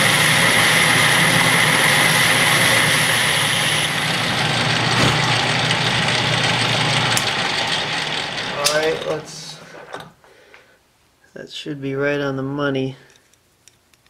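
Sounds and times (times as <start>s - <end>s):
lathe cutting hiss with whine: 0.0s - 7.7s
lathe running drone: 0.0s - 9.3s.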